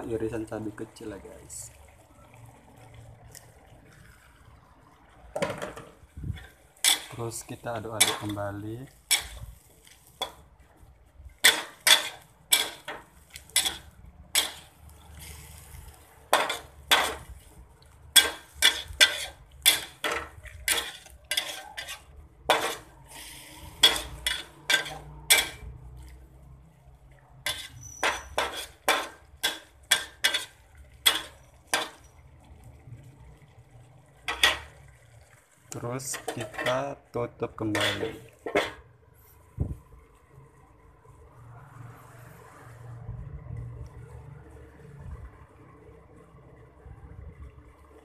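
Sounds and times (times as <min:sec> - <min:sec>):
spatula clanking against pan: 0:05.6 - 0:07.2, 0:08.0 - 0:08.4, 0:09.1 - 0:09.4, 0:11.4 - 0:14.7, 0:16.3 - 0:17.3, 0:18.2 - 0:22.9, 0:23.8 - 0:25.6, 0:27.5 - 0:32.0, 0:34.3 - 0:34.7, 0:36.1 - 0:36.8, 0:37.7 - 0:38.8.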